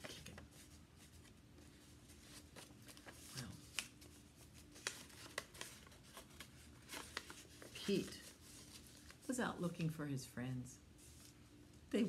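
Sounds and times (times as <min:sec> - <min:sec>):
paper rustling and crinkling: 0:00.0 - 0:09.4.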